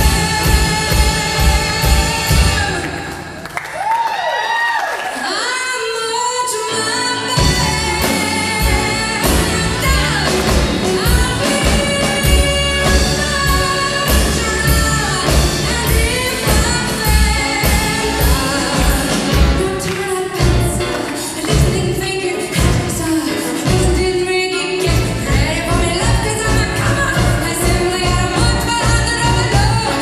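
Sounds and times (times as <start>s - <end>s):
bass guitar: 0.0s - 2.9s, 7.2s - 22.0s, 22.6s - 24.2s, 24.8s - 30.0s
drum and cymbal hits: 0.0s - 3.1s, 7.4s - 24.1s
woman singing: 0.0s - 3.4s, 5.2s - 30.0s.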